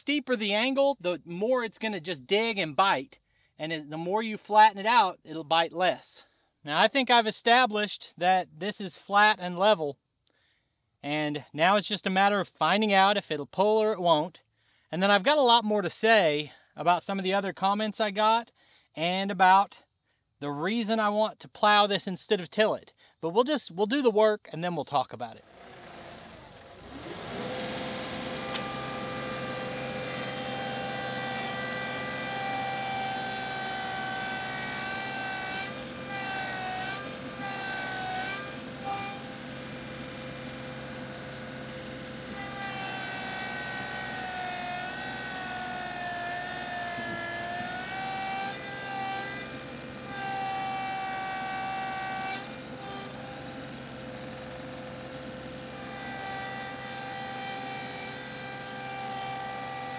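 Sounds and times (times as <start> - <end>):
tractor diesel engine: 25.3 - 59.9
hydrostatic drive whining: 25.5 - 56.8.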